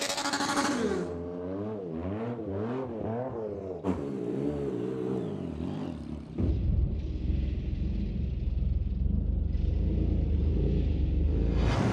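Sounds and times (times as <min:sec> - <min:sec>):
motorcycle engine revving: 0:00.0 - 0:11.9
motorcycle deep rumble: 0:03.6 - 0:11.7.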